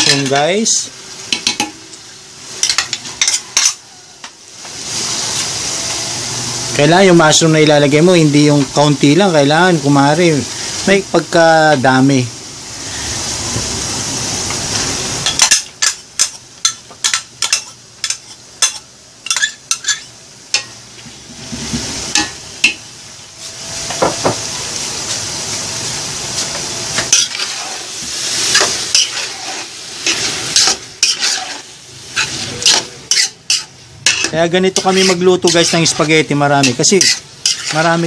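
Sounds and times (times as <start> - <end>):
meat and mushrooms sizzling: 0.0 - 38.0
metal spoon scraping a pot: 27.1 - 27.8, 28.5 - 37.9.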